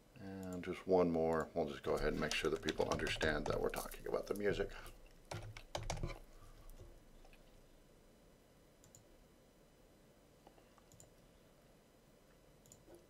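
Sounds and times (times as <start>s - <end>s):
faint computer mouse clicks: 8.8s - 9.1s, 10.4s - 11.2s, 12.6s - 13.0s.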